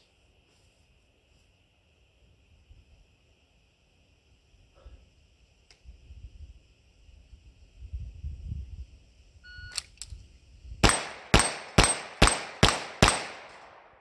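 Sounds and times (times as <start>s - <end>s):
handgun shots: 10.8s - 14.0s.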